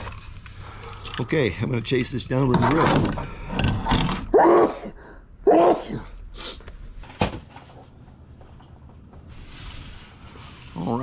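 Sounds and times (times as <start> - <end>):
man grunting: 4.6 - 6.1.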